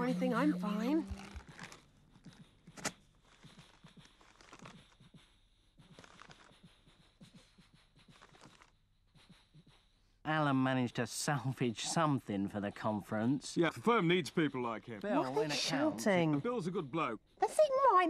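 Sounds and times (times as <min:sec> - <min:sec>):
faint chewing: 0:01.0 - 0:09.3.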